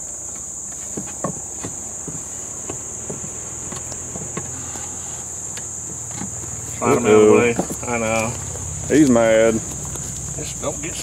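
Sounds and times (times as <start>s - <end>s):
cricket chorus: 0.0s - 11.0s
honeybees humming: 0.0s - 11.0s
wooden knocks and scrapes: 0.3s - 8.8s.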